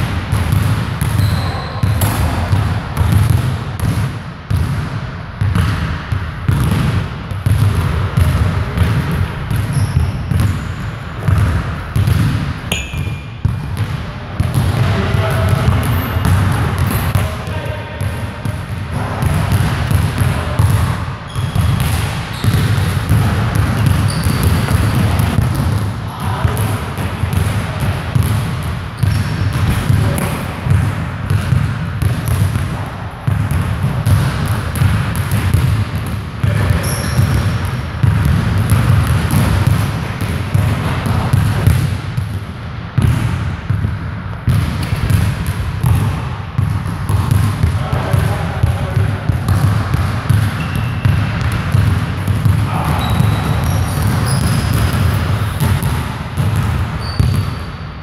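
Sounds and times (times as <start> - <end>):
basketballs bouncing on wooden floor: 0.0 - 57.7
shoe squeaks: 1.1 - 2.2, 9.7 - 10.9, 12.7 - 13.4, 15.9 - 16.2, 21.3 - 22.7, 23.8 - 25.0, 29.0 - 29.4, 36.8 - 37.4, 50.6 - 51.2, 52.9 - 55.6, 57.0 - 58.0.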